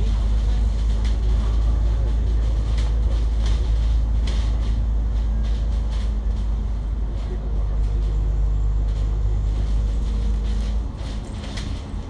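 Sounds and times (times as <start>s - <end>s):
bus engine drone: 0.0s - 12.0s
short rattles: 9.0s - 12.0s.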